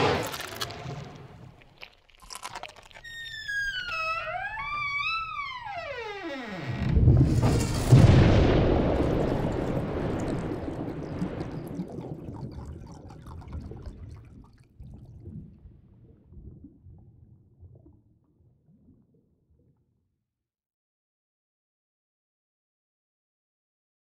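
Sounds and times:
loud crash rolling into low rumble: 0:06.9 - 0:11.6.

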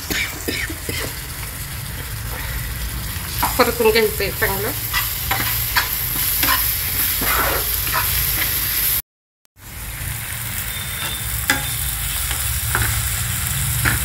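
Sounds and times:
food sizzling in oil: 0:00.0 - 0:09.0, 0:09.6 - 0:14.0
spatula scraping a pan: 0:04.8 - 0:08.8, 0:10.7 - 0:14.0.

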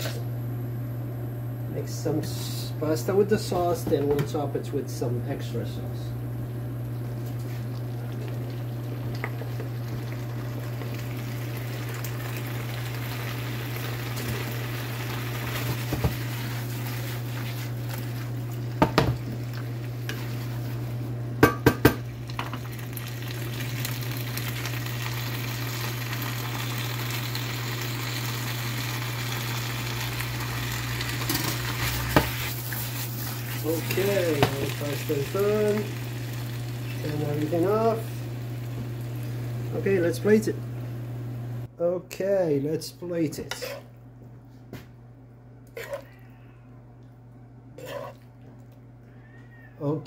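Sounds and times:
steady low hum: 0:00.0 - 0:27.5, 0:28.4 - 0:49.5
pasta being stirred in: 0:07.3 - 0:21.0, 0:31.0 - 0:39.4, 0:43.5 - 0:43.9, 0:47.8 - 0:48.3
sauce sizzling in a skillet: 0:08.3 - 0:20.9, 0:22.2 - 0:39.8.

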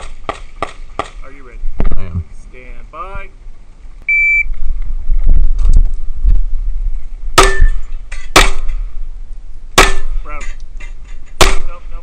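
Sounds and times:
shot timer beep: 0:04.1 - 0:04.5
handgun shots: 0:07.4 - 0:07.8, 0:08.4 - 0:08.7, 0:11.4 - 0:11.8.

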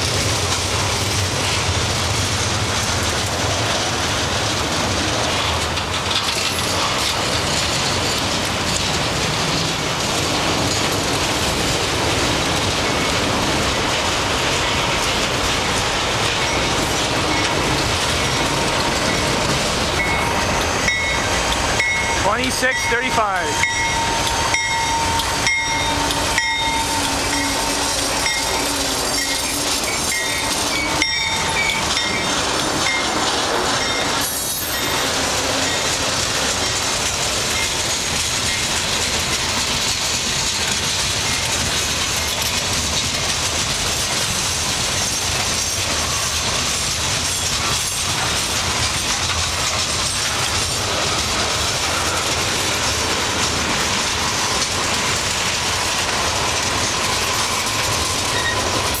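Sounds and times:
locomotive passing: 0:00.0 - 0:59.0
train wheels on rails: 0:00.0 - 0:59.0
wheels clicking over rail joints: 0:00.0 - 0:59.0.

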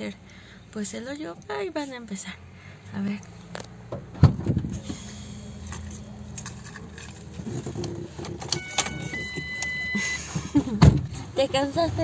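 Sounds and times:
electronic chime: 0:08.6 - 0:10.3.

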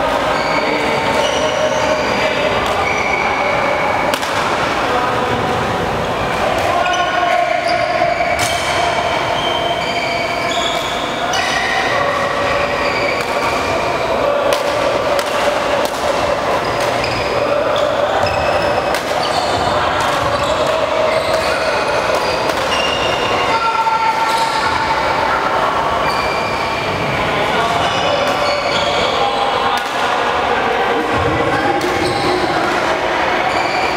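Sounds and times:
racket hitting shuttlecock: 0:04.1 - 0:04.7, 0:14.5 - 0:17.2, 0:18.9 - 0:22.9, 0:29.8 - 0:30.1.

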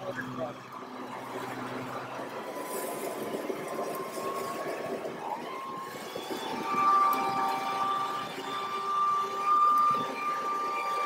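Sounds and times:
leaf blower engine whine: 0:00.0 - 0:11.0
leaves blowing across lawn: 0:02.5 - 0:04.8.

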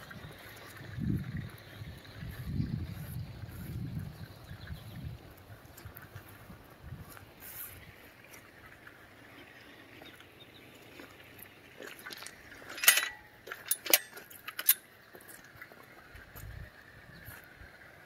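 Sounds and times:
low outdoor background: 0:00.0 - 0:18.0
metal gate latch clanking: 0:12.7 - 0:14.8.

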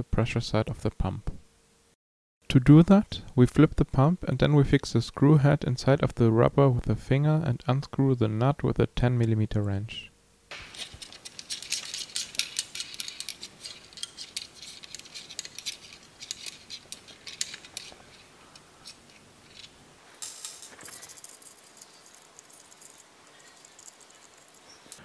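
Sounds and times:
wrench clicking and rattling: 0:10.6 - 0:25.0
scraping rattle: 0:10.7 - 0:25.0.

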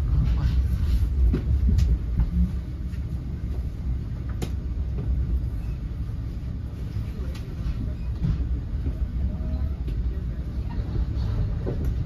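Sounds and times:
train wheels rumbling on track: 0:00.0 - 0:12.0.

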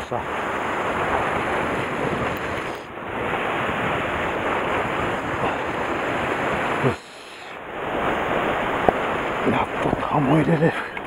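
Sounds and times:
surf breaking against rocks: 0:00.0 - 0:11.0.

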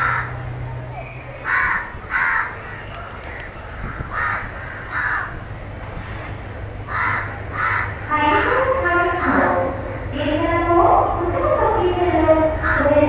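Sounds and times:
crow cawing: 0:00.0 - 0:00.4, 0:01.4 - 0:02.6, 0:03.9 - 0:05.4, 0:06.9 - 0:10.1, 0:12.5 - 0:12.9
low steady rumble: 0:00.0 - 0:13.0.

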